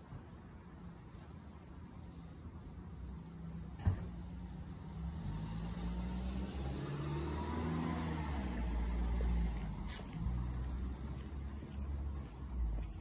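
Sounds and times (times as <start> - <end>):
car passing: 4.2 - 13.0.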